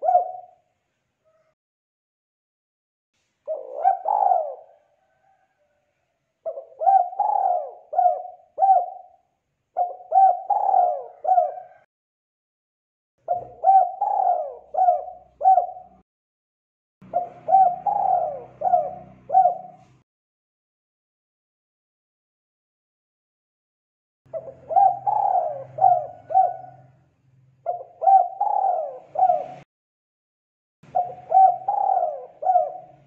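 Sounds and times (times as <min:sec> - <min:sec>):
dove cooing: 0:00.0 - 0:01.6, 0:03.5 - 0:05.8, 0:06.4 - 0:11.9, 0:13.2 - 0:16.0, 0:17.0 - 0:20.0, 0:24.3 - 0:27.0, 0:27.6 - 0:29.7, 0:30.9 - 0:33.0.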